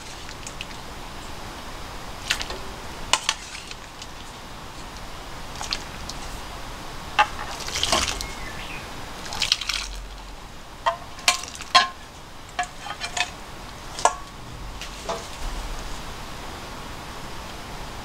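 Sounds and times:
soup pouring splashes: 0:05.5 - 0:06.4, 0:07.2 - 0:08.4, 0:09.2 - 0:10.3, 0:11.1 - 0:12.0
ladle clinking on metal: 0:10.9 - 0:15.4.

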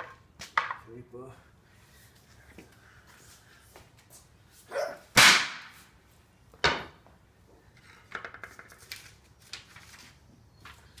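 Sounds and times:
sledgehammer striking metal punch: 0:05.2 - 0:05.7.

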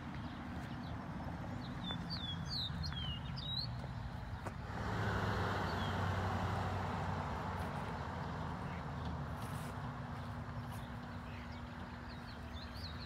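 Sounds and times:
footsteps on gravel: 0:00.0 - 0:04.7, 0:07.4 - 0:13.0
small birds chirping: 0:00.0 - 0:04.7, 0:05.4 - 0:06.6, 0:07.6 - 0:13.0
vehicle passing: 0:01.0 - 0:13.0.

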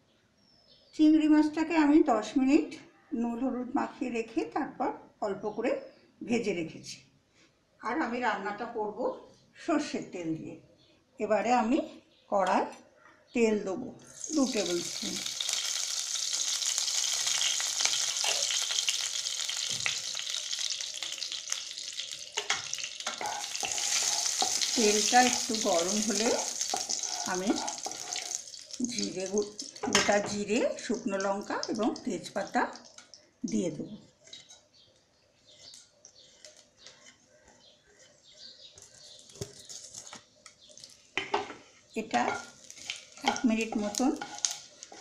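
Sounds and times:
oil sizzling and crackling: 0:14.1 - 0:33.2, 0:40.7 - 0:41.4, 0:42.2 - 0:45.0
metal spoon scraping pan: 0:17.4 - 0:28.7, 0:42.1 - 0:45.0.

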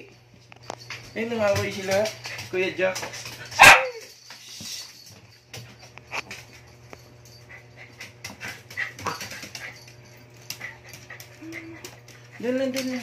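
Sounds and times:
dogs scuffling: 0:00.2 - 0:13.0
paws ticking on wooden floor: 0:00.3 - 0:04.4, 0:05.0 - 0:13.0
dogs panting: 0:01.0 - 0:03.6, 0:05.6 - 0:13.0
dogs whimpering: 0:08.8 - 0:12.5.

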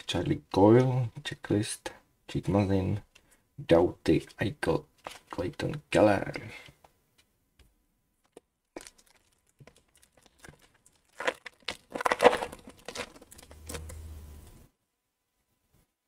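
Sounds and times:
foil wrapper crinkling and tearing: 0:08.3 - 0:13.9.

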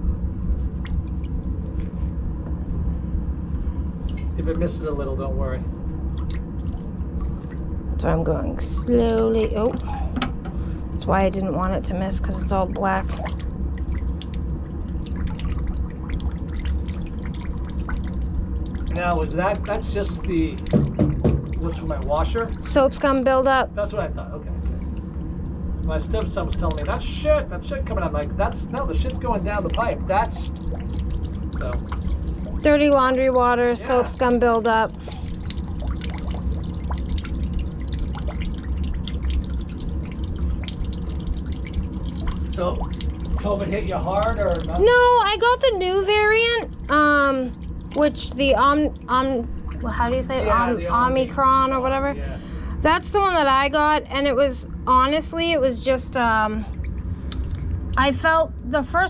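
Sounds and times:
steady low hum: 0:00.0 - 0:59.0
steady low rumble: 0:00.0 - 0:59.0
water dripping into bucket: 0:00.6 - 0:01.6, 0:06.0 - 0:10.0, 0:12.1 - 0:23.3, 0:24.1 - 0:50.7.

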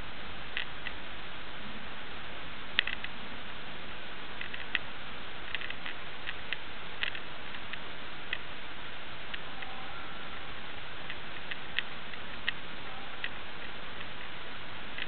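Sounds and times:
camera microphone hiss: 0:00.0 - 0:15.0
faint sharp clicks: 0:02.8 - 0:03.2, 0:05.5 - 0:08.5.

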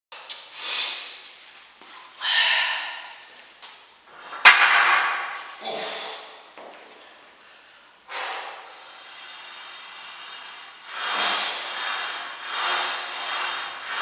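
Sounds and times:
person exhaling forcefully: 0:02.2 - 0:03.3, 0:05.6 - 0:06.4, 0:07.5 - 0:14.0.

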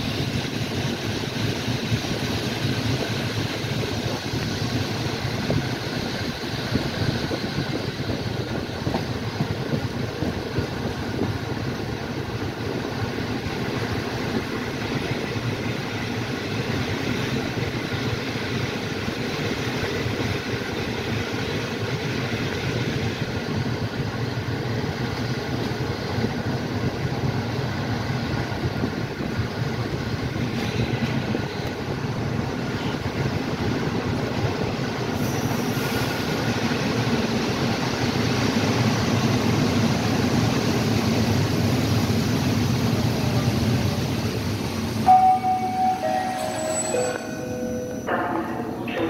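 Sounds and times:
train wheels rumbling on rails: 0:00.0 - 0:49.0
stepped chime tone: 0:45.1 - 0:49.0.

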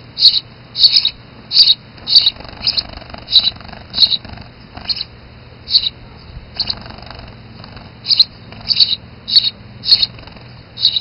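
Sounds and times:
sparrow chirping: 0:00.2 - 0:11.0.

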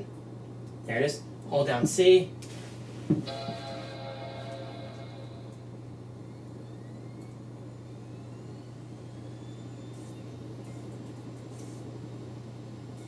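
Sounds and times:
steady low hum: 0:00.0 - 0:13.0
dvd drive spinning up: 0:03.2 - 0:13.0.

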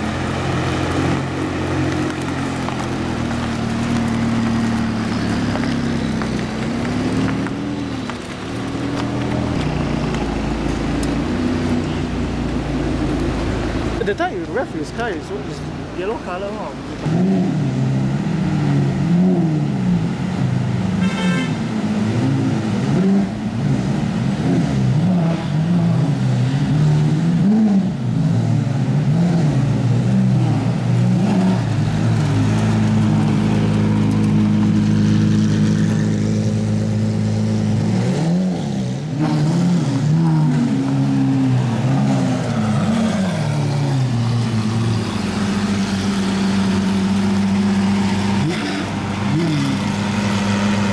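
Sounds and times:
car engine revving: 0:00.0 - 0:21.0, 0:21.6 - 0:50.9.

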